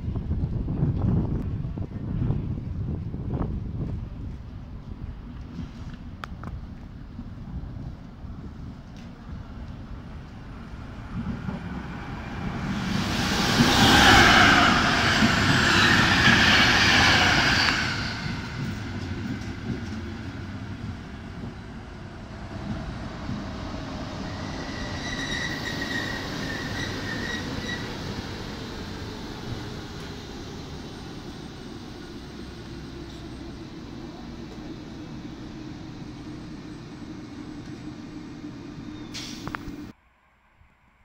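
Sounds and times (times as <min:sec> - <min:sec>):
high locomotive whine: 0:00.0 - 0:41.0
train rushing past: 0:09.4 - 0:39.9.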